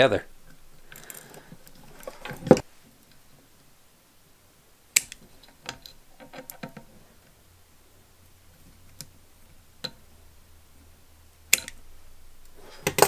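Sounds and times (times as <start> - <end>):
pliers and wires clicking: 0.4 - 3.2, 4.9 - 7.4, 11.5 - 13.0.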